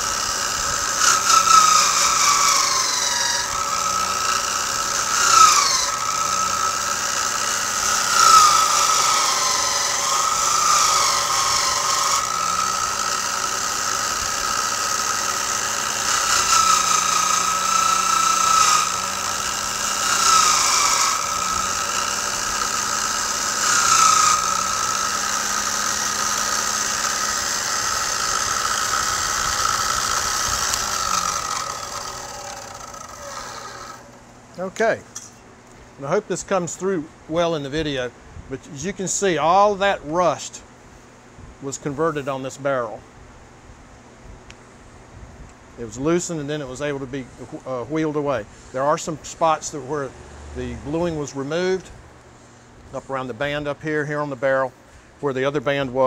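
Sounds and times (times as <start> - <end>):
wire wheel brushing metal: 0.0 - 35.3
wire wheel motor whining: 0.0 - 35.3, 49.0 - 52.0.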